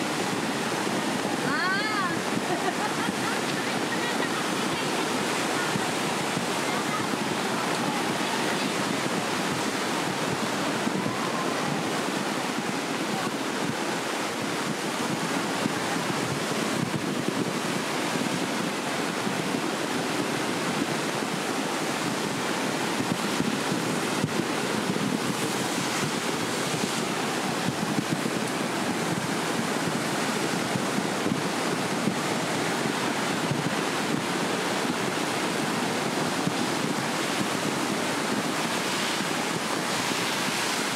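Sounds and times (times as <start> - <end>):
river torrent rushing: 0.0 - 40.9.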